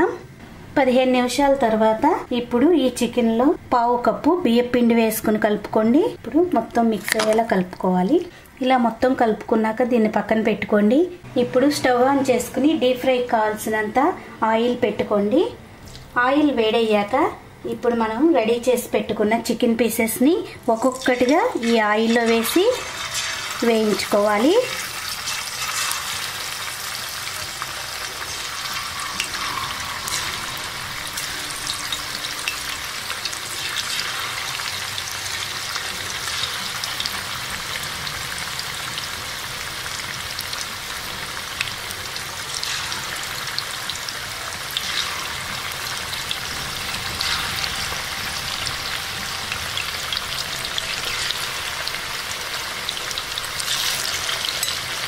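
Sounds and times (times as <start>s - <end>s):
chicken deep-frying in oil: 20.7s - 55.0s.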